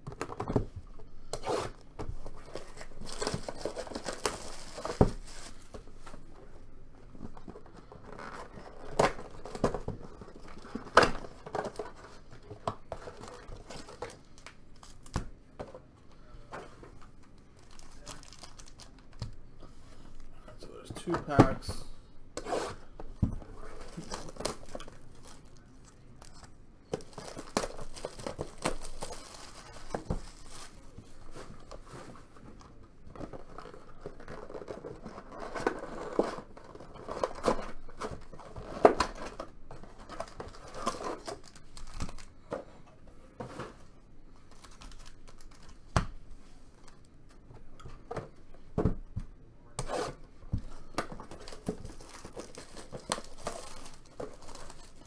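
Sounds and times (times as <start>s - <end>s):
foil wrapper tearing and crinkling: 17.6s - 19.1s, 27.0s - 30.9s, 51.3s - 55.0s.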